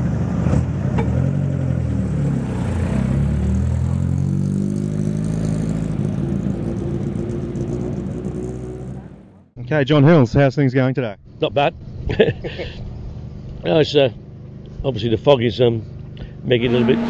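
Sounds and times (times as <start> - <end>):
rally car engine revving: 0.0 - 9.5, 16.2 - 17.0.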